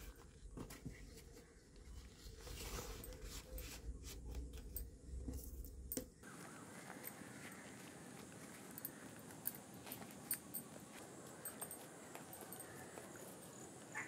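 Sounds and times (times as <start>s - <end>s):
string tying parcel: 0.0s - 14.0s
banana leaves rustling: 6.2s - 14.0s.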